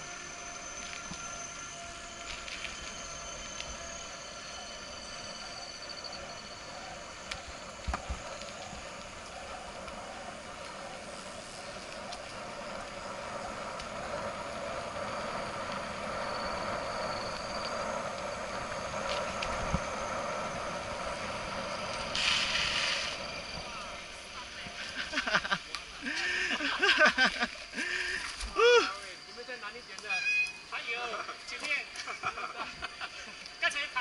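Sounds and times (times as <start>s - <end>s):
bicycle tyre and wind noise: 0.0s - 30.8s
bicycle rattling over bumps: 0.6s - 4.2s, 5.1s - 28.5s.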